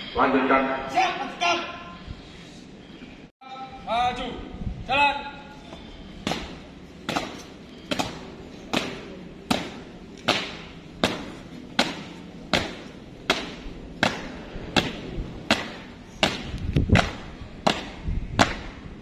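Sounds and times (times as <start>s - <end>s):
marching feet stamping on pavement: 5.7s - 18.8s.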